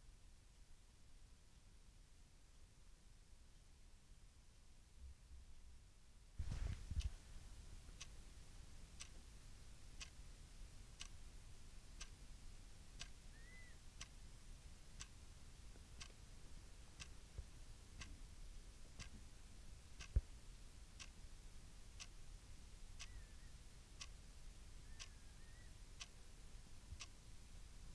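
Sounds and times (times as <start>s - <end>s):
clock ticking: 9.0s - 9.2s, 16.0s - 16.2s, 17.0s - 17.3s, 18.9s - 19.2s, 20.0s - 20.3s, 21.0s - 21.2s, 24.0s - 24.2s, 26.9s - 27.2s.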